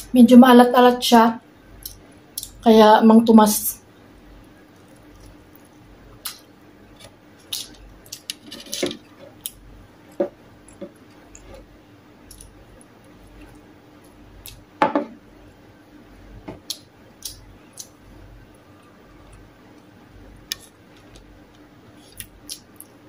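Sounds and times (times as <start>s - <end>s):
chewing and mouth noises: 10.6s - 11.6s, 21.9s - 23.0s.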